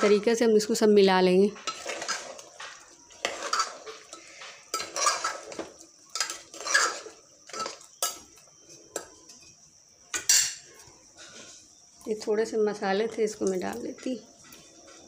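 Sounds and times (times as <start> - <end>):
metal spoon scraping a pot: 1.6 - 11.6.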